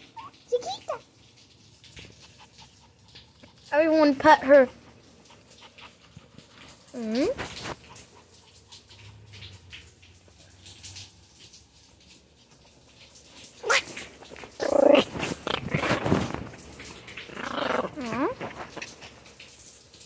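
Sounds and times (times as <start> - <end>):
small dog whiny yowls: 13.6 - 14.0.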